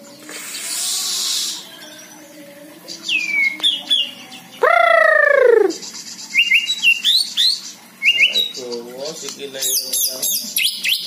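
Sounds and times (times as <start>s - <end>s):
bird singing whistles and trills: 2.9s - 8.8s, 9.6s - 11.0s
loud long bird call: 4.6s - 7.2s.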